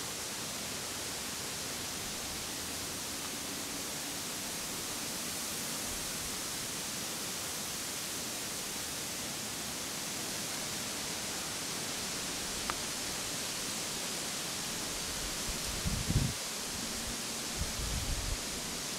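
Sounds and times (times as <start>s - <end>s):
steady hiss: 0.0s - 18.9s.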